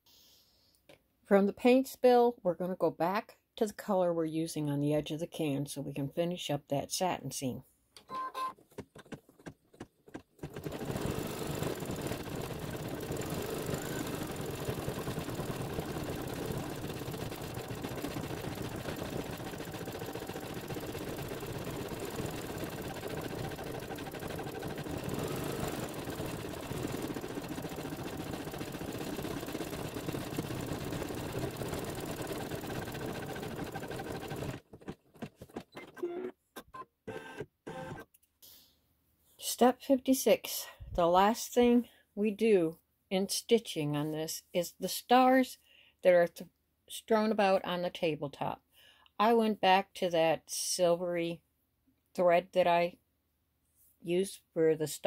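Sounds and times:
embroidery machine stitching: 0:08.1 - 0:36.2.

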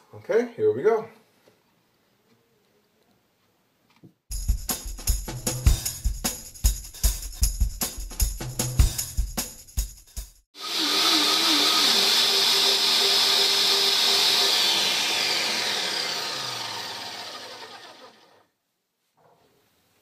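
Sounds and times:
drum-beat music: 0:04.3 - 0:10.4
blenders whirring: 0:10.6 - 0:18.5.

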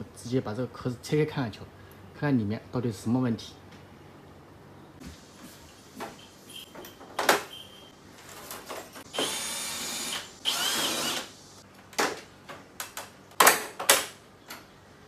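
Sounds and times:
cordless drill running: 0:09.1 - 0:11.3.

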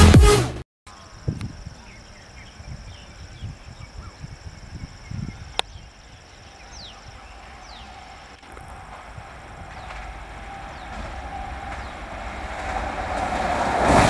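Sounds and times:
bird chirps: 0:00.9 - 0:12.2
high insect drone: 0:00.9 - 0:13.2
electric train hum: 0:01.4 - 0:14.0
low irregular rumble: 0:06.6 - 0:14.0.

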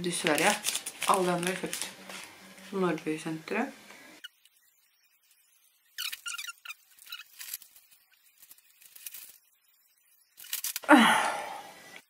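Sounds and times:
chewing mouth clicks and squeaks: 0:06.0 - 0:07.6.

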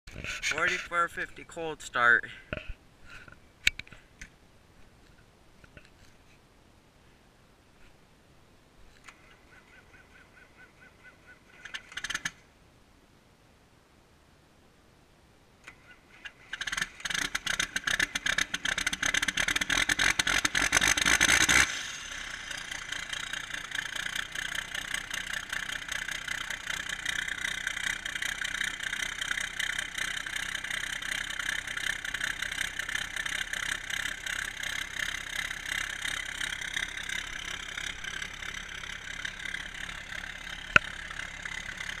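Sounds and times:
diesel engine cranking and idling: 0:15.7 - 0:42.0.

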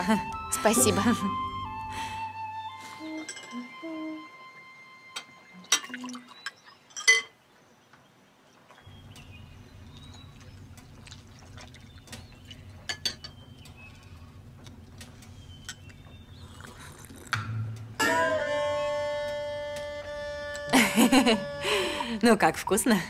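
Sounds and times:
dishes and utensils clinking: 0:03.1 - 0:03.6, 0:05.6 - 0:07.4, 0:12.8 - 0:13.4
low steady hum: 0:08.8 - 0:23.0.

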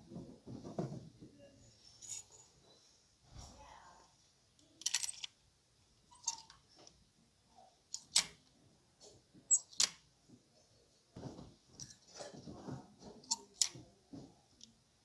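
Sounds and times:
plastic hangers clicking on metal rail: 0:07.9 - 0:08.4, 0:13.2 - 0:13.8.

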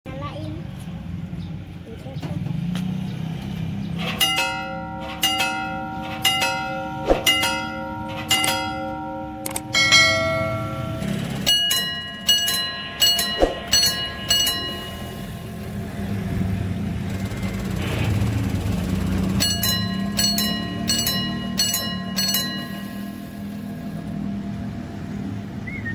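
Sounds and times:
level crossing bells ringing: 0:04.0 - 0:24.5
different-toned bell striking fast: 0:04.2 - 0:16.3, 0:19.2 - 0:24.0.

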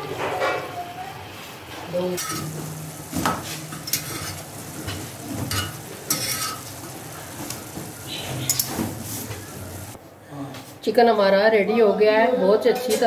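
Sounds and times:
chicken sizzling in oil: 0:01.9 - 0:10.0
spatula scraping and knocking pan: 0:02.2 - 0:09.5.

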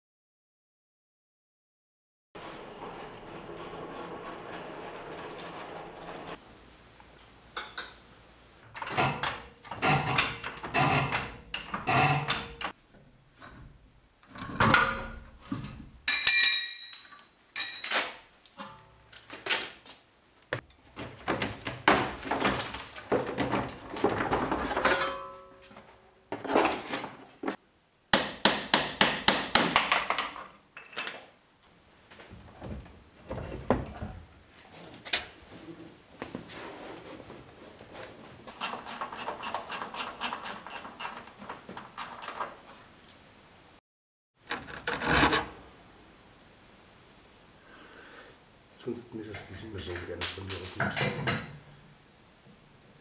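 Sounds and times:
metallic tool knocks and clanks: 0:16.1 - 0:18.8, 0:20.6 - 0:21.1
metal ringing: 0:16.1 - 0:18.9.

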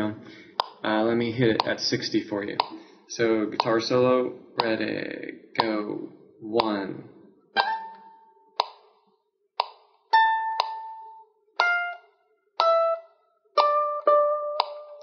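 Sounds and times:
metronome clicking: 0:00.6 - 0:00.9, 0:01.6 - 0:01.8, 0:02.6 - 0:02.8, 0:03.5 - 0:04.0, 0:04.6 - 0:04.8, 0:05.6 - 0:06.0, 0:07.6 - 0:09.0, 0:09.6 - 0:15.0
ukulele plucked notes: 0:04.6 - 0:05.0, 0:07.6 - 0:08.8, 0:09.6 - 0:15.0.

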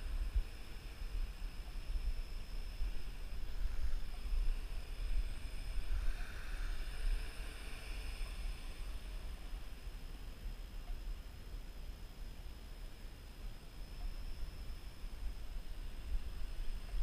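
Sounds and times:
drone propellers buzzing: 0:00.0 - 0:10.6
wind buffeting microphone: 0:00.0 - 0:11.8, 0:14.1 - 0:17.0.

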